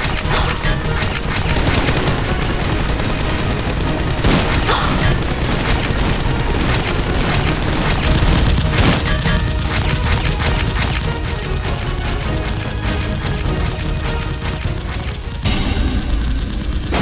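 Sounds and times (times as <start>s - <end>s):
gunfire sound effects: 0.0s - 11.4s
background music: 0.0s - 17.0s.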